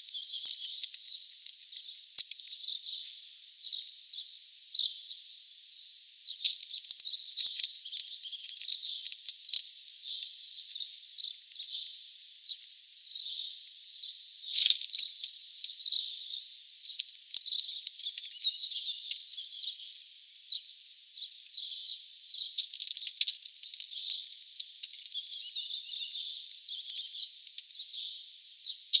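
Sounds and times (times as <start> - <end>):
small birds chirping: 0.0 - 29.0
sharp clicks and ticks: 0.1 - 2.6, 6.4 - 9.7, 16.9 - 18.4, 22.6 - 25.0.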